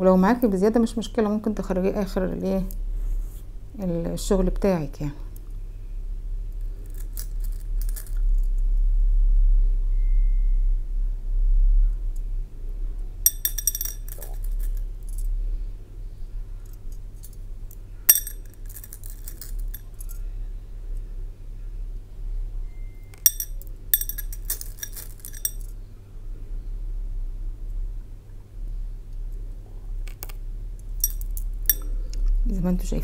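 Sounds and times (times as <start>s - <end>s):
steady low hum: 0.0s - 33.0s
beads clinking against glass bowl: 13.3s - 14.8s, 18.1s - 20.2s, 23.2s - 25.7s, 31.0s - 31.9s.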